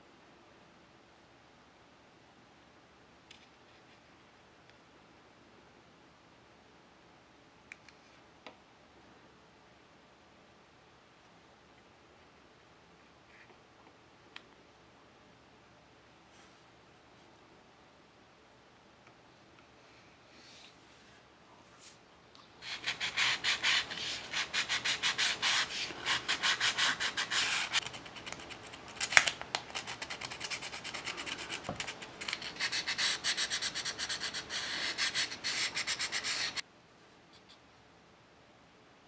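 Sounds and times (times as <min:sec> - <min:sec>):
sandpaper rubbing on wood: 0:22.6 - 0:27.8, 0:29.8 - 0:36.6.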